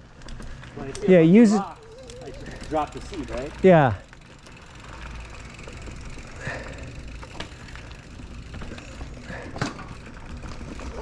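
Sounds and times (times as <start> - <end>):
bike knocks and rattles: 5.2 - 11.0.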